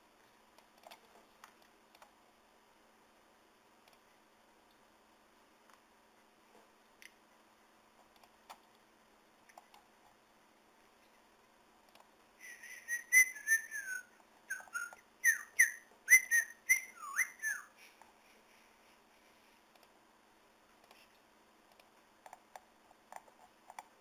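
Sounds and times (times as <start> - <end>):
faint computer mouse clicks: 0.6 - 2.2, 19.7 - 20.0, 20.8 - 23.9
short whistled notes: 12.4 - 17.7.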